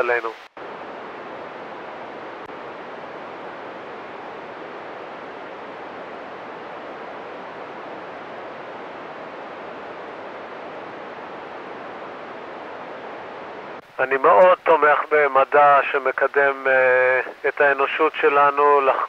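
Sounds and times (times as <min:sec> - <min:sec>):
radio receiver hiss: 0:00.0 - 0:01.0, 0:10.8 - 0:19.0.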